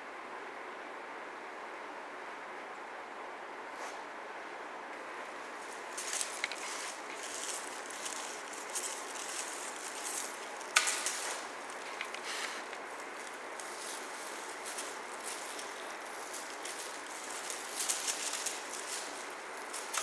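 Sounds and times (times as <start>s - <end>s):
steady hiss: 3.3s - 20.0s
toy streamers rustling and crinkling: 5.6s - 20.0s.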